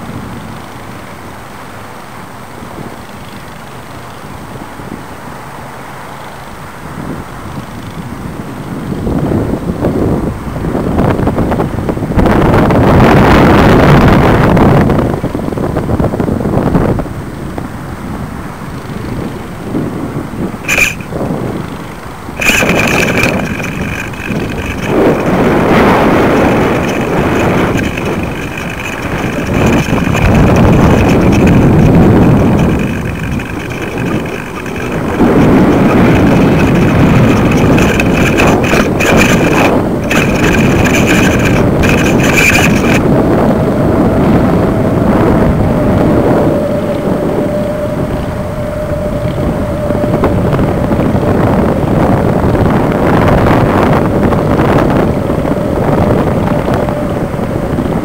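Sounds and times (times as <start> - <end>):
wind buffeting microphone: 0.0 - 58.0
thin high whine: 20.2 - 58.0
crackling: 20.6 - 43.2.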